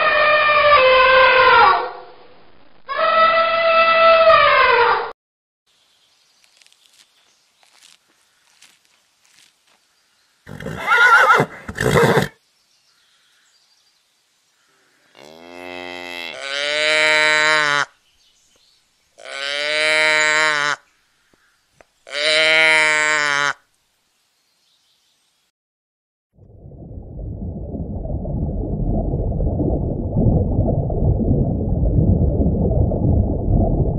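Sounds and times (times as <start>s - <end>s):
cattle mooing: 15.2s - 17.7s.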